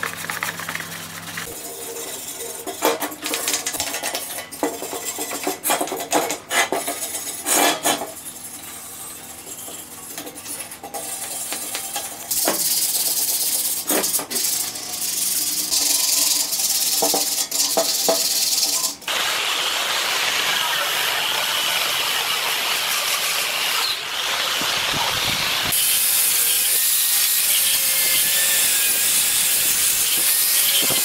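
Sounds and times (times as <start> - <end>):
brush scrubbing metal: 0.0 - 19.0.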